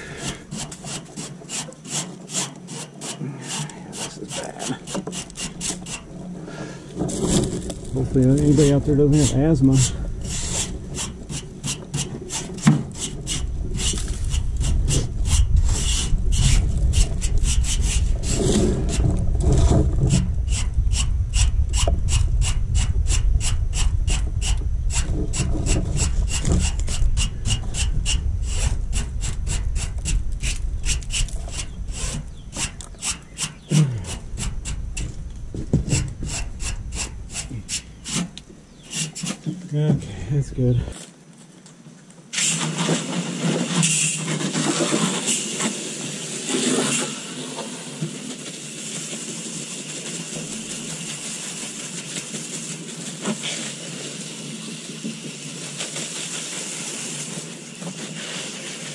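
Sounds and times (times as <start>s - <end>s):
brush scrubbing metal fins: 0.0s - 35.2s, 35.8s - 39.5s, 48.3s - 54.3s
low rumble: 13.3s - 32.9s.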